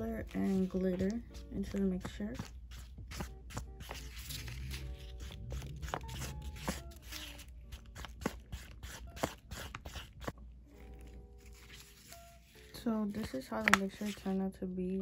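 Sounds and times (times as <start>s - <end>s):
stick stirring sticky gloss: 0.0s - 10.4s
soft background music: 0.0s - 15.0s.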